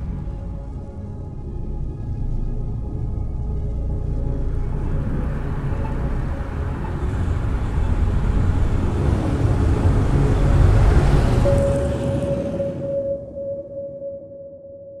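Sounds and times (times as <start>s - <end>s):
car road rumble with tyre hiss: 3.3s - 12.7s
oncoming car passing: 4.4s - 13.5s
held music tone: 10.2s - 15.0s.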